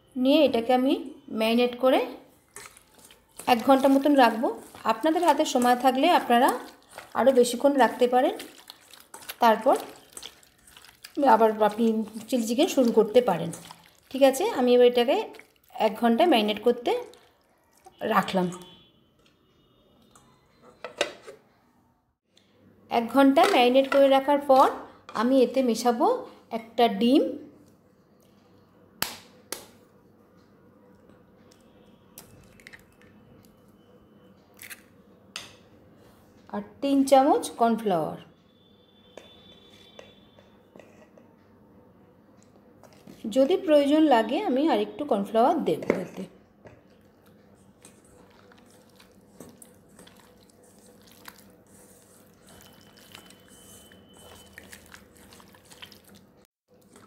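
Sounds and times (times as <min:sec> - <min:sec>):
wet squelching of mixing batter: 0:01.8 - 0:18.9, 0:42.4 - 0:44.2, 0:46.0 - 0:57.0.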